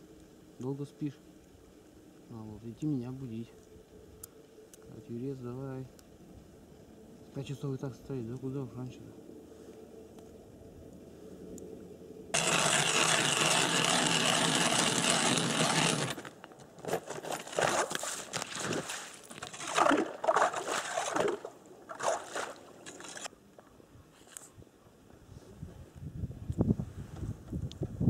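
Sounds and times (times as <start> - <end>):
scraping and splashing in ice hole: 12.4 - 23.3.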